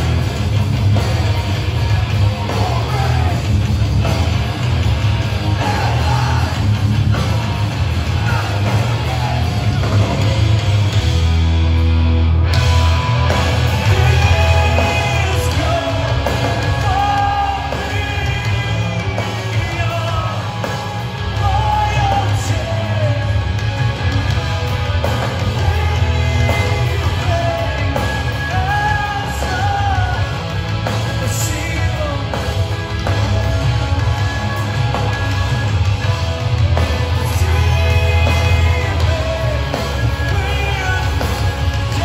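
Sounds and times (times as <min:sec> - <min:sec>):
bass guitar: 0:00.0 - 0:42.0
distorted electric guitars: 0:00.0 - 0:42.0
drums: 0:00.0 - 0:42.0
person singing lead vocal: 0:02.3 - 0:03.6, 0:05.4 - 0:10.5, 0:13.7 - 0:23.8, 0:24.9 - 0:34.6, 0:36.8 - 0:42.0.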